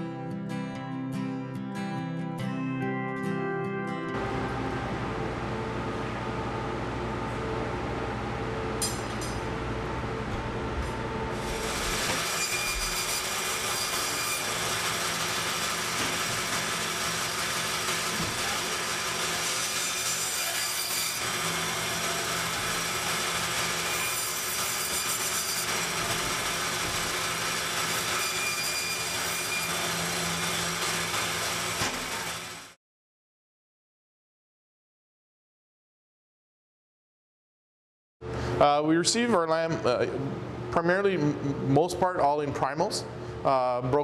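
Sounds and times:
band saw cutting through bone: 0:11.4 - 0:32.8.

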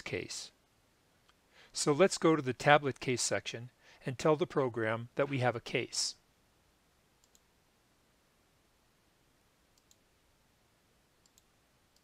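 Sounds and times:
computer mouse clicks: 0:07.2 - 0:07.5, 0:09.8 - 0:10.0, 0:11.2 - 0:12.0.

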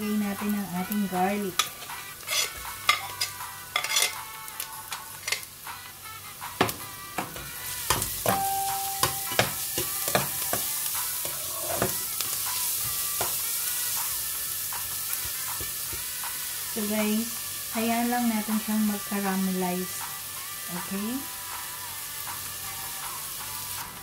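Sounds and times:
garlic and onion sizzling in oil: 0:00.0 - 0:24.0
metal spoon scraping pot: 0:01.5 - 0:04.2, 0:05.2 - 0:05.5, 0:11.2 - 0:12.0.

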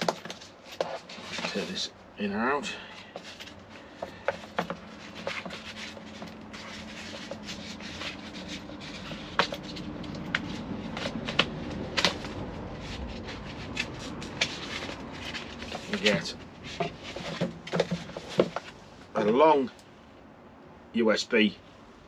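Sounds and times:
foam and cardboard rubbing: 0:03.2 - 0:18.8.

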